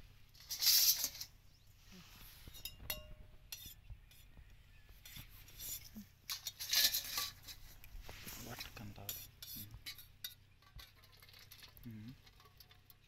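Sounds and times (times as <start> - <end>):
steel plates and utensils clinking: 2.4 - 4.2, 5.0 - 7.7, 8.6 - 13.0.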